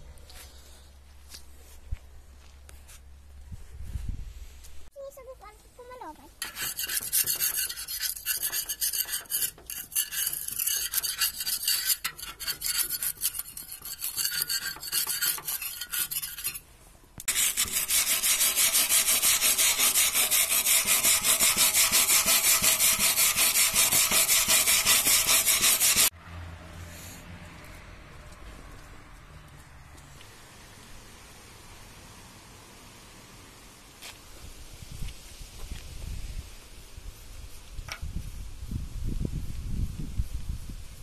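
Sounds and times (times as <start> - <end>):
rasping scraping on steel drum: 6.4 - 26.1.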